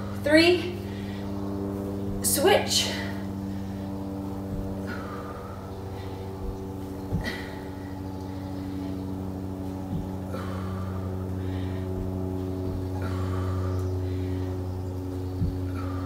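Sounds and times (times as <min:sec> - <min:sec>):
steady low hum: 0:00.0 - 0:16.0
breathy exhalations: 0:02.1 - 0:14.6.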